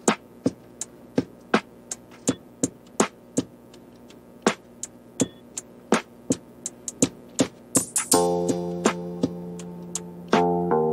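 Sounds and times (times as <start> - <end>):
electronic beat: 0.0 - 10.9.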